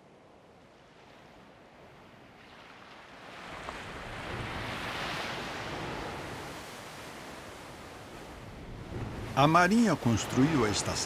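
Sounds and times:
wind: 0:00.0 - 0:11.0
sea surf rushing: 0:02.6 - 0:11.0.

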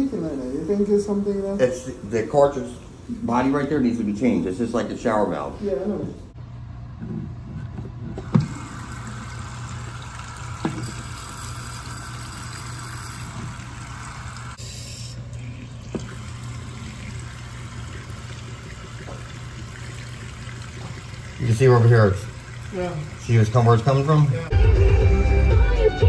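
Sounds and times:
faucet running into basin: 0:08.2 - 0:24.5.

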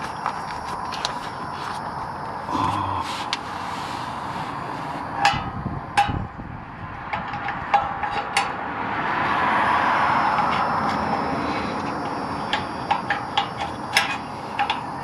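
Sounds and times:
steady hiss: 0:02.3 - 0:05.3
metal clinks and taps: 0:12.0 - 0:14.9.

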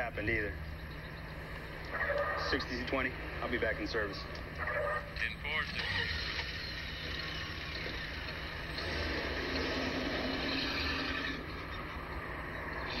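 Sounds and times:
road noise: 0:00.0 - 0:13.0
car engine driving off: 0:05.8 - 0:13.0.

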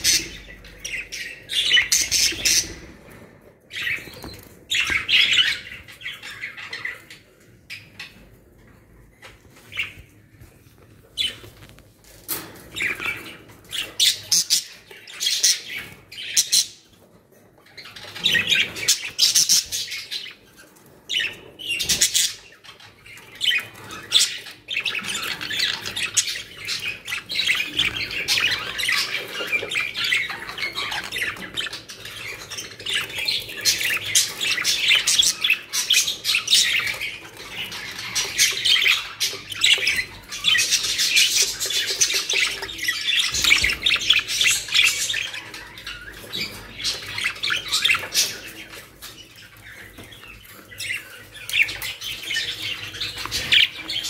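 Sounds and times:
budgerigars chattering: 0:21.2 - 0:54.0.

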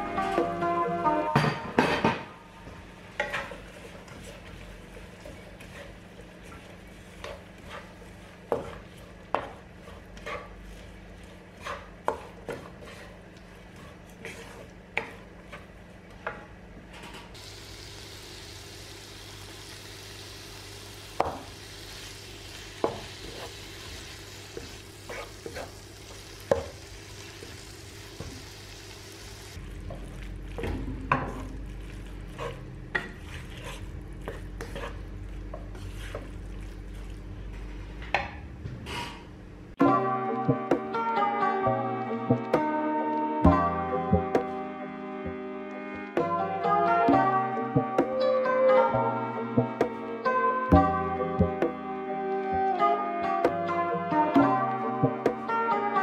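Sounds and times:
vegetables sizzling: 0:17.4 - 0:37.4.

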